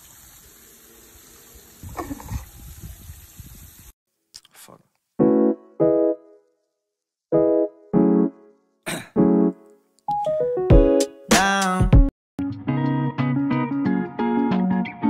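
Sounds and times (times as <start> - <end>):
electric piano chords: 5.2 - 6.5, 7.3 - 8.6, 9.2 - 11.2.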